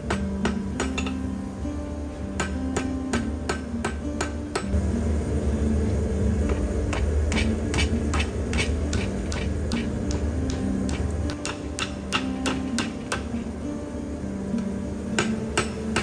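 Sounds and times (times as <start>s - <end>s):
hammer striking steel on anvil: 0.0s - 1.2s, 2.3s - 4.8s, 6.4s - 13.4s, 15.2s - 16.0s.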